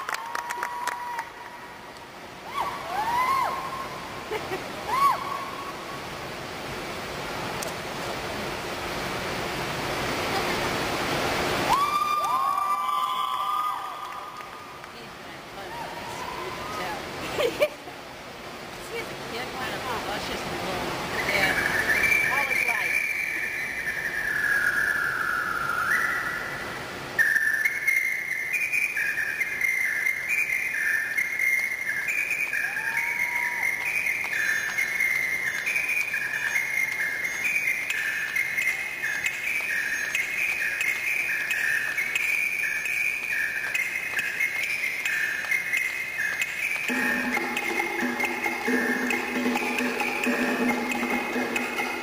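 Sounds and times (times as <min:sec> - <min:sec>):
high whistle-like melody: 0:21.2 - 0:26.6, 0:27.2 - 0:52.0.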